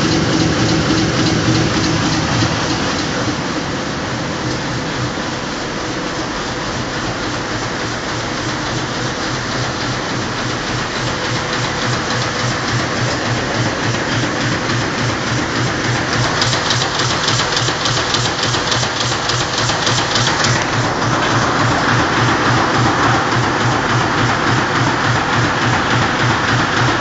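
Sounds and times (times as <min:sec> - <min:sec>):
conveyor machinery clattering: 0:00.0 - 0:27.0
quick regular clicking: 0:08.9 - 0:27.0.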